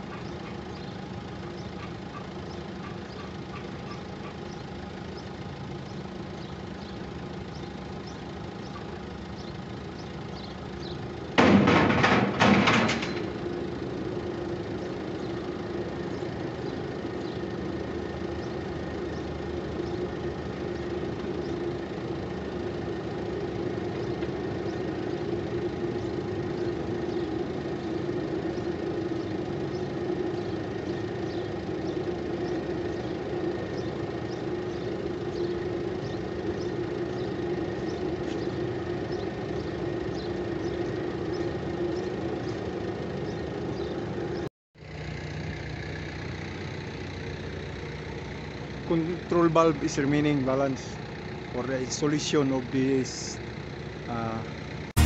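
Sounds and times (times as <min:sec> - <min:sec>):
engine idling: 0:00.0 - 0:55.0
metal clanks and rattles: 0:11.4 - 0:13.6.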